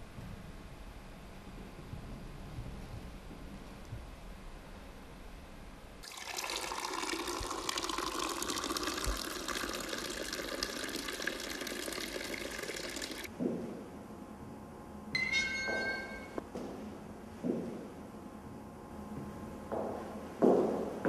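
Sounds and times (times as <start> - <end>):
water pouring into a glass: 6.0 - 13.3.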